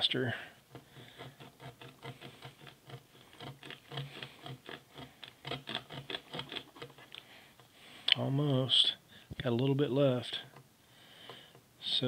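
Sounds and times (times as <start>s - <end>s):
serrated knife sawing rope: 0.0s - 8.8s.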